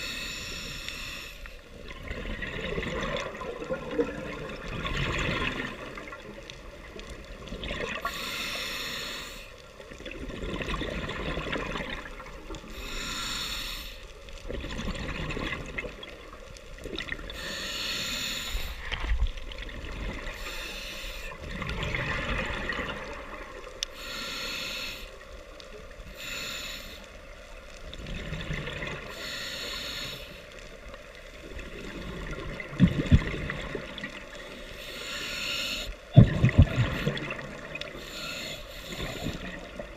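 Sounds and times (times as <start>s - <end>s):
regulator breath hiss: 0.0s - 1.7s, 8.0s - 9.6s, 12.7s - 14.2s, 17.3s - 18.9s, 20.4s - 21.4s, 23.9s - 25.2s, 26.0s - 27.2s, 29.0s - 30.6s, 34.5s - 36.1s, 37.9s - 39.6s
rush of exhaled bubbles: 1.8s - 6.2s, 7.4s - 8.1s, 10.0s - 12.4s, 14.5s - 16.2s, 21.5s - 23.6s, 31.6s - 34.2s, 36.1s - 37.8s.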